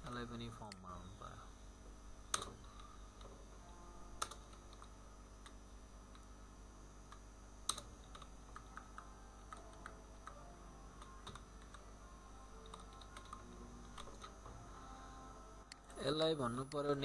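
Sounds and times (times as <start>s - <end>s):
faint keyboard typing: 2.3s - 6.3s, 7.1s - 14.7s.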